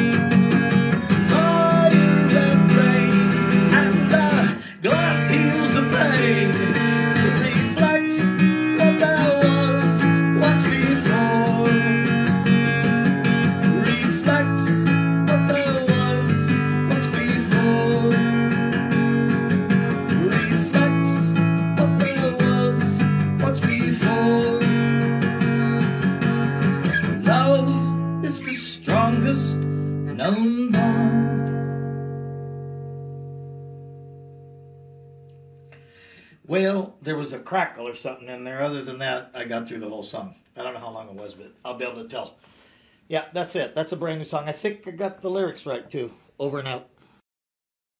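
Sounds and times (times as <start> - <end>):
acoustic guitar strumming: 0.0 - 36.3
man singing into a microphone: 1.2 - 12.2, 13.6 - 18.5, 20.1 - 25.0, 27.2 - 31.6.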